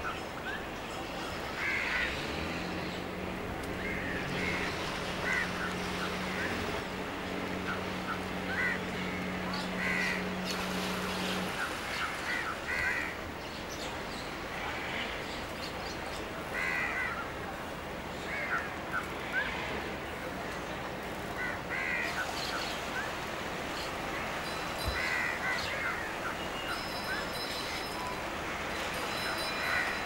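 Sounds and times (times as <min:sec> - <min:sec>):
steady background noise: 0:00.0 - 0:30.0
birds calling: 0:00.1 - 0:14.4.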